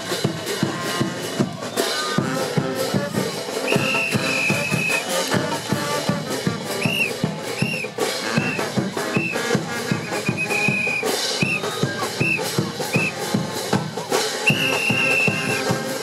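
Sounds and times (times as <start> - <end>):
brass band playing: 0.0 - 16.0
rising and falling whistle blasts: 3.7 - 5.1, 6.8 - 9.4, 10.0 - 13.2, 14.4 - 15.7.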